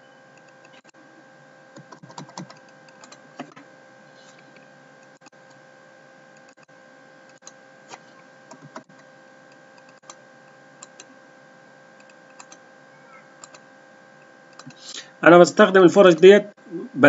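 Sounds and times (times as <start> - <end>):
low electrical hum: 0.0 - 17.0
computer mouse clicks: 1.8 - 3.6, 6.3 - 10.2, 10.8 - 11.1, 12.0 - 12.6, 13.4 - 13.7, 14.5 - 14.8.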